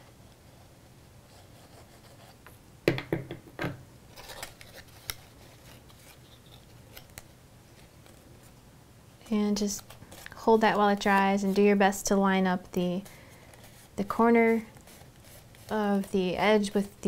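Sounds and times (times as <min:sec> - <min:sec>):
paper rustling: 0:04.1 - 0:08.6, 0:09.6 - 0:11.9, 0:13.0 - 0:16.8
cardstock paper clicks and scrapes: 0:04.2 - 0:08.2.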